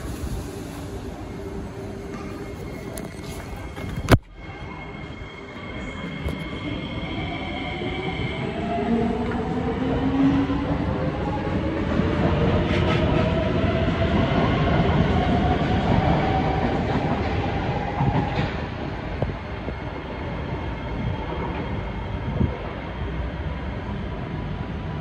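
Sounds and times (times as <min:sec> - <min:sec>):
train wheels rumbling on rails: 0:05.5 - 0:25.0.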